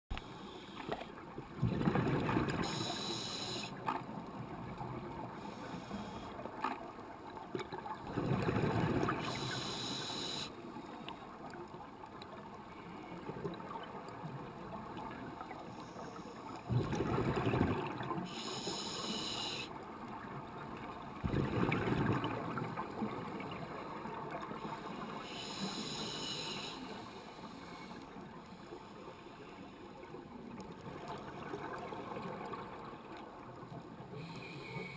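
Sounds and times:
exhaled bubbles rushing: 1.6 - 2.7, 8.1 - 9.2, 16.7 - 18.1, 21.2 - 23.3
diver breathing through regulator: 2.6 - 3.8, 5.4 - 6.4, 9.2 - 10.6, 18.2 - 19.7, 24.8 - 29.6, 34.2 - 34.9.

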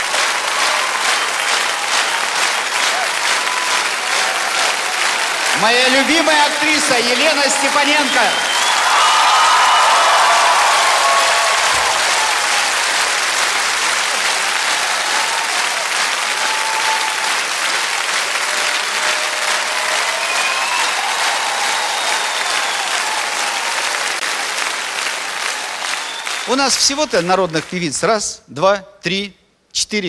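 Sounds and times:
audience applauding: 0.0 - 28.2.

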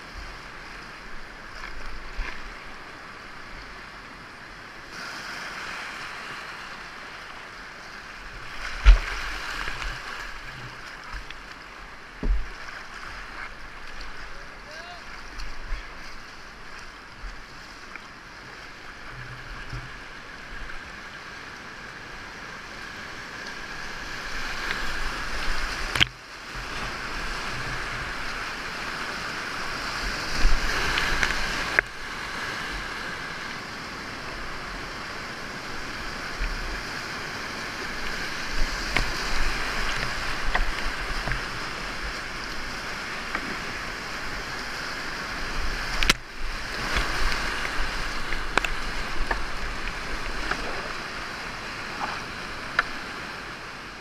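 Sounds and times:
water splashes: 4.9 - 21.6, 22.3 - 54.0
whitewater rapids rushing: 22.4 - 54.0.

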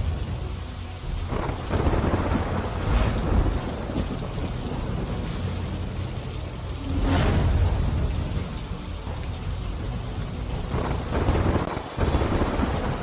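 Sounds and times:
rain falling: 0.0 - 13.0
low rumbling thunder: 1.0 - 13.0
sharp thunder crack: 1.3 - 5.0.

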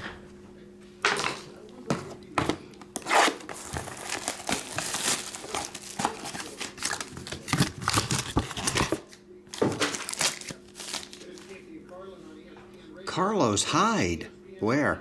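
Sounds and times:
cardboard box opening: 3.0 - 9.0
plastic wrap crinkling and tearing: 3.0 - 11.5.

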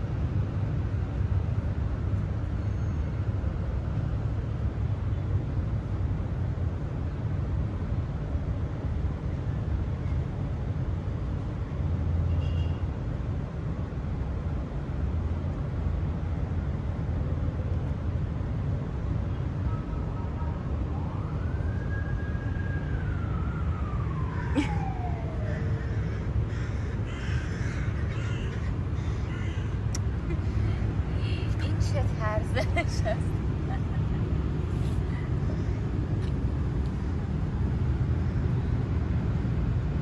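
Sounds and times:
distant siren: 19.6 - 29.8
steady low rumble: 22.9 - 40.0
crows cawing: 25.5 - 29.9.

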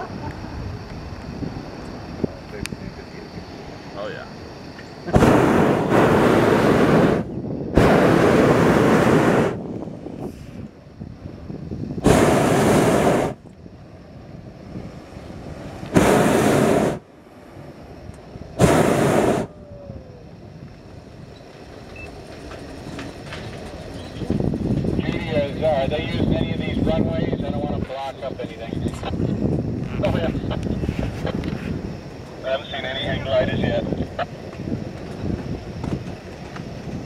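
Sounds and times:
propane burner roaring: 0.0 - 37.0.

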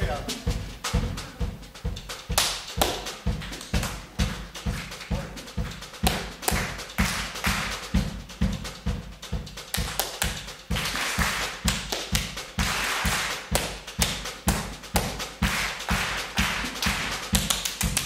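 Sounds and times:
sharp hand claps: 2.2 - 8.0, 9.6 - 18.0
hands slapping chest: 2.3 - 3.9.

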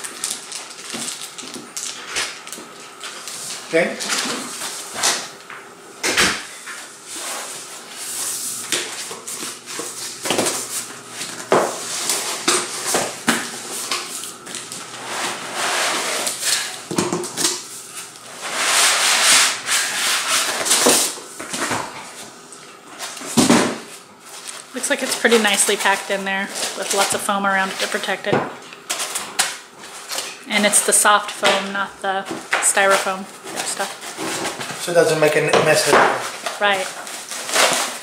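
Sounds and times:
cardboard and foam scraping: 15.0 - 16.8, 18.4 - 21.2, 35.7 - 38.0.

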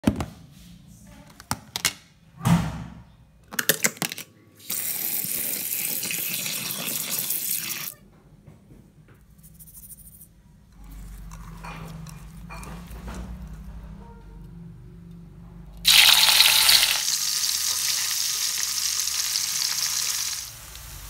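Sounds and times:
tap water running into tub: 15.9 - 20.9.

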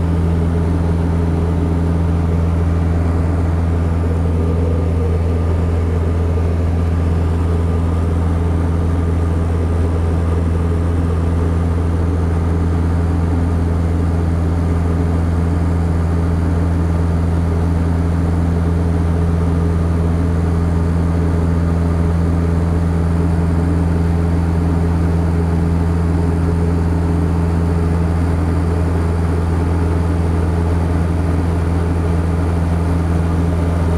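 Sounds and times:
small plane engine droning: 0.0 - 33.9.

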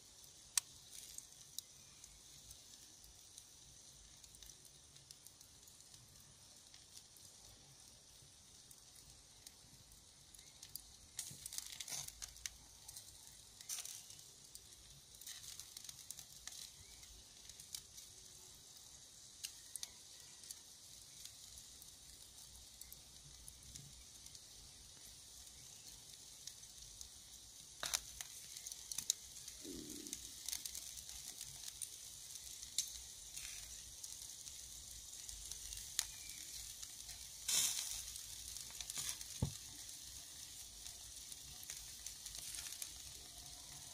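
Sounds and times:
meat sizzling on grill: 0.0 - 43.9
fat popping and crackling: 10.4 - 18.6, 27.6 - 43.9.

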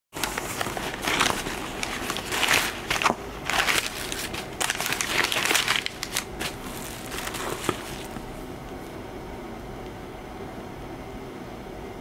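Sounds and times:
packing paper crinkling: 0.2 - 8.4.

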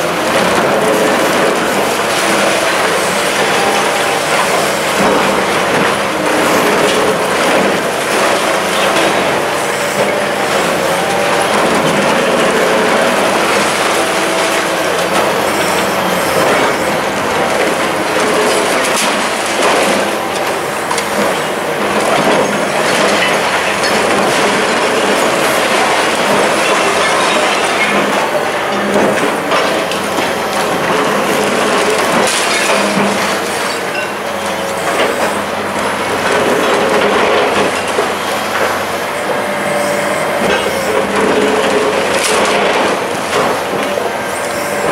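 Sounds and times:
excavator crushing concrete: 0.0 - 44.9
screeching of tearing concrete and metal: 0.0 - 44.9.

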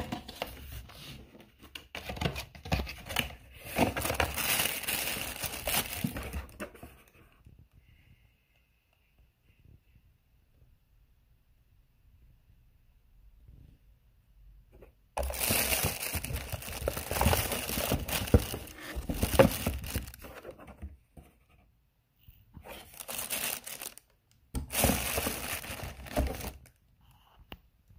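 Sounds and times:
plastic wrap crinkling: 3.8 - 6.6, 15.2 - 20.4, 22.7 - 26.7.

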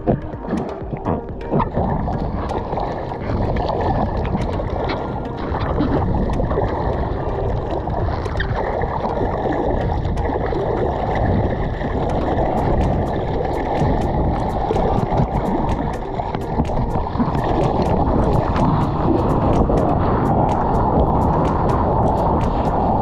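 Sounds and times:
small splashes and drips: 0.0 - 22.8
water sloshing along surfboard: 0.0 - 23.0.

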